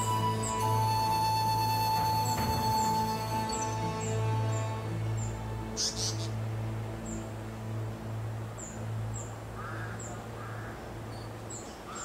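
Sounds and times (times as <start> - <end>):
bird harsh rasping calls: 2.3 - 6.4.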